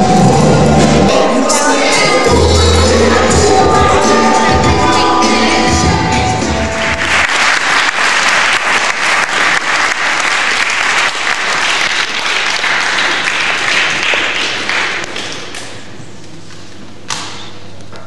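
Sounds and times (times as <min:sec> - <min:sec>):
audience applauding: 0:06.7 - 0:15.7.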